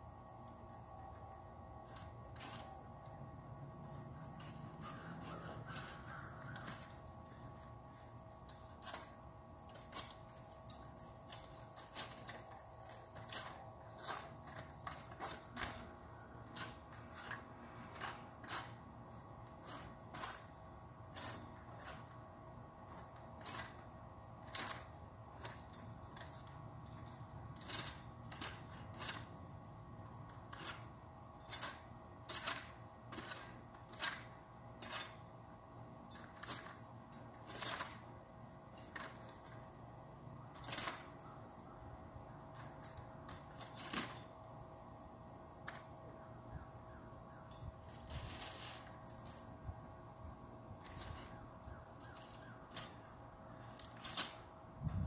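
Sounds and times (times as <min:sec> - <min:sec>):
faint steady hum: 0:00.0 - 0:55.0
pruning shears snipping branches: 0:03.8 - 0:07.7, 0:08.4 - 0:22.2, 0:22.8 - 0:29.4, 0:30.0 - 0:35.3.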